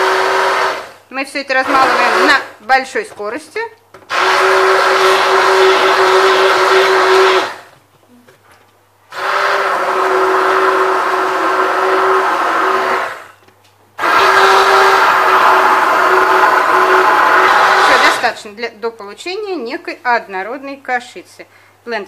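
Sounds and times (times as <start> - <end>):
immersion blender whining: 0.0 - 2.6, 4.0 - 7.8, 9.1 - 13.4, 14.0 - 18.4.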